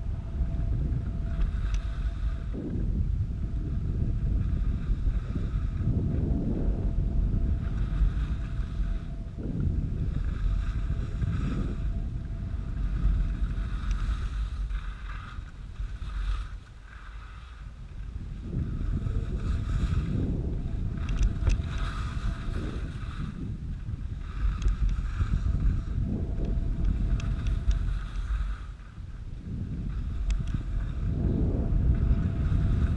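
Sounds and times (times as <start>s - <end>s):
snow scraping hiss: 0.0s - 32.9s
wind rumbling over microphone: 0.0s - 32.9s.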